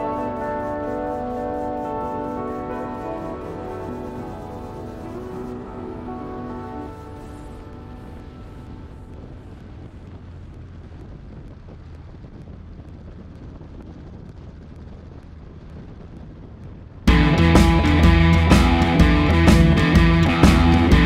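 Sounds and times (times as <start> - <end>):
rock music with guitar: 0.0 - 8.9, 17.1 - 21.0
motorcycle engine running: 0.0 - 21.0
wind noise on microphone: 0.0 - 21.0.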